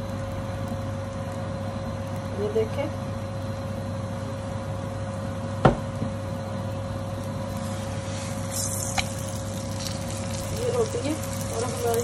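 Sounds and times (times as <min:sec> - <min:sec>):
steady low hum: 0:00.0 - 0:12.0
oil sizzling on hot pan: 0:06.7 - 0:12.0.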